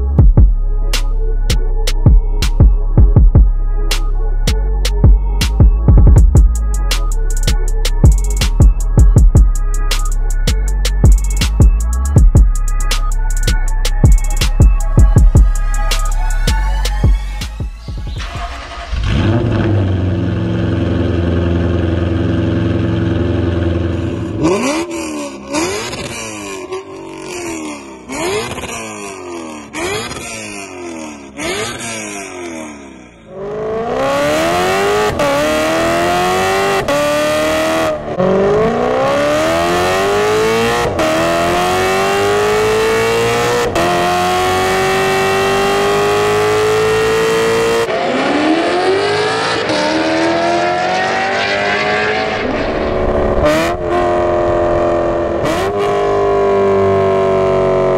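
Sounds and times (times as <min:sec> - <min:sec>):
car engine revving and accelerating: 0:18.0 - 0:57.9.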